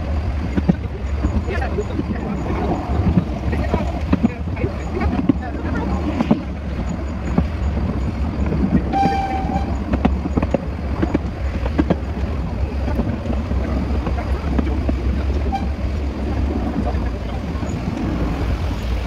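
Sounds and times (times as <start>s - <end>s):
train running drone: 0.0s - 19.0s
train whistle toot: 8.9s - 9.8s, 15.5s - 15.8s.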